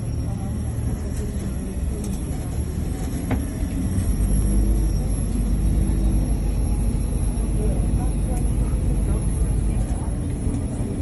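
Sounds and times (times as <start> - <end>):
low rumble of airport apron: 0.0 - 11.0.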